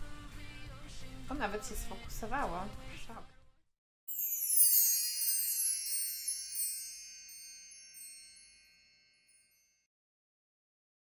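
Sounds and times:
high glittering chimes: 4.1s - 9.9s.

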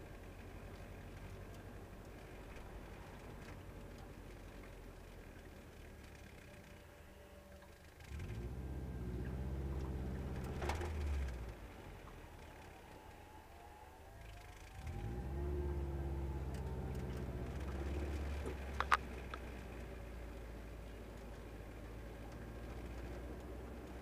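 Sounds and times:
car engine accelerating: 0.0s - 24.0s.

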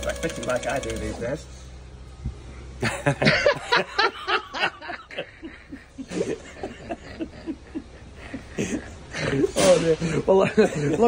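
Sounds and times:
person chuckling: 2.8s - 11.0s.

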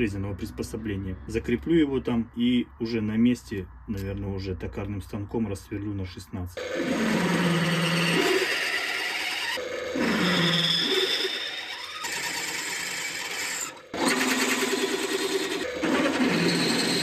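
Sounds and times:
drill press boring through steel: 6.6s - 17.0s.

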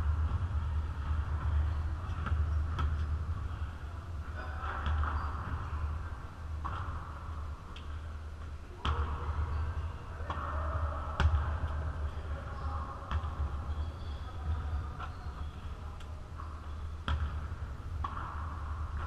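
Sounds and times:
basketball bouncing on gym floor: 0.0s - 3.7s, 4.4s - 6.0s, 10.2s - 11.9s, 13.0s - 15.6s, 16.4s - 19.0s.

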